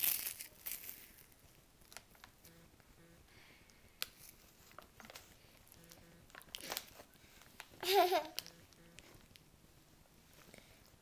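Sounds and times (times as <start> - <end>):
plastic snack bag crinkling: 0.0 - 2.4, 4.0 - 8.5
child chewing crunchy snack: 4.1 - 7.7.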